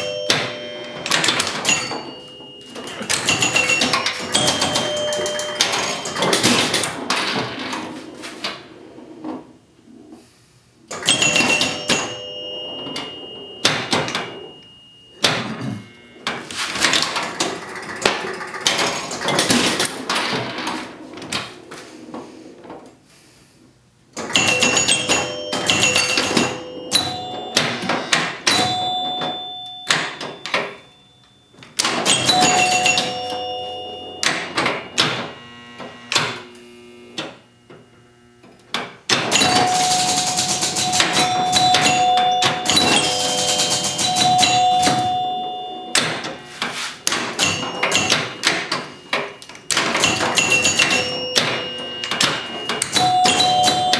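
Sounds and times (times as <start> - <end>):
pinball chimes ringing: 0.0 - 10.1, 10.9 - 22.7, 24.2 - 53.9
rapid mechanical clicking: 17.0 - 20.0.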